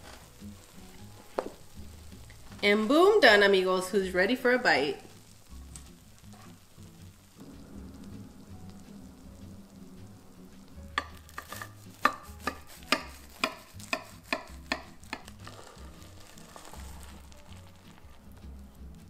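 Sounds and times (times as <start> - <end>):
knife crunching through crumb topping: 11.2 - 18.2.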